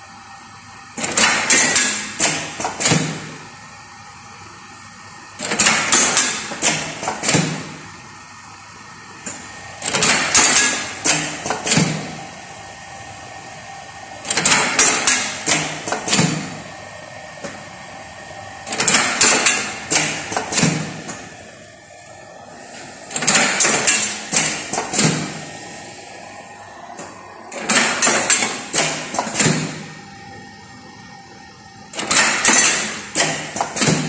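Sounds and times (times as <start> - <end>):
steady machine hum: 0.0 - 34.0
metallic clacks of casting machine: 1.0 - 3.3, 5.4 - 7.8, 9.2 - 12.2, 14.2 - 16.6, 18.6 - 21.3, 23.1 - 25.5, 27.0 - 30.0, 31.9 - 34.0.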